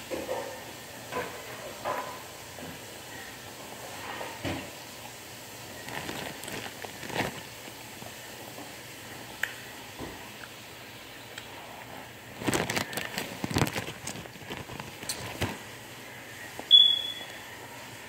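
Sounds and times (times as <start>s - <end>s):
handling knocks and rustles: 5.9s - 7.5s, 12.4s - 15.7s.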